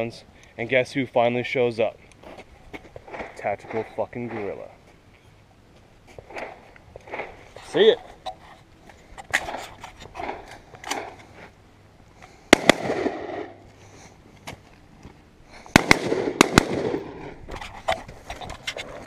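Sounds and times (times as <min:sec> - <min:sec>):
rifle shots with echo: 0:12.5 - 0:13.6, 0:15.7 - 0:17.4.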